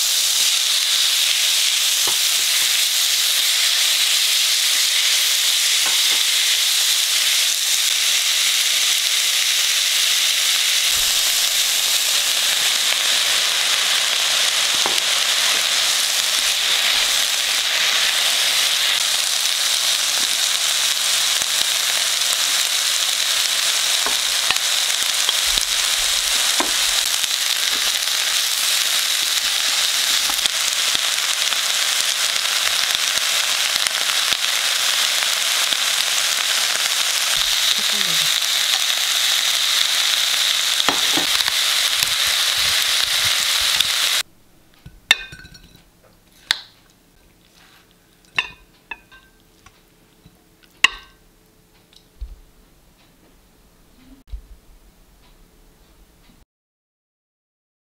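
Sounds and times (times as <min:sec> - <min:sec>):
food sizzling in a wok: 0:00.0 - 0:44.3, 0:44.9 - 0:49.4, 0:50.8 - 0:51.3
spatula clinking on pan: 0:44.8 - 0:46.6, 0:48.3 - 0:49.4, 0:50.8 - 0:51.2.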